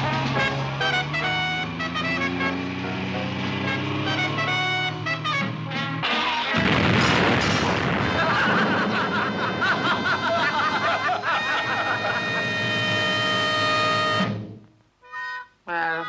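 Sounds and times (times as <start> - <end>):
comic film music: 0.0 - 6.7, 8.2 - 15.4
explosion bang with rumble: 6.6 - 10.4.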